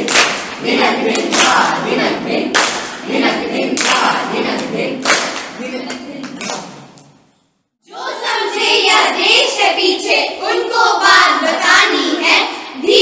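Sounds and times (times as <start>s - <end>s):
voices singing together: 0.0s - 6.9s, 7.8s - 13.0s
sharp clap-like beat: 0.0s - 7.2s.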